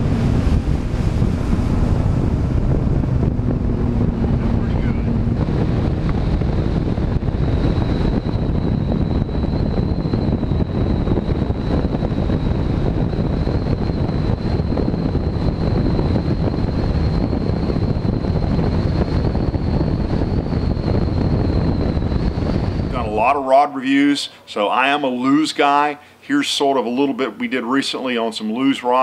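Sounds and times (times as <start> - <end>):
boat outboard engine at full throttle: 0.0 - 19.3
wind buffeting microphone: 0.0 - 24.2
hull noise: 0.0 - 29.0
steady high whine: 0.0 - 29.0.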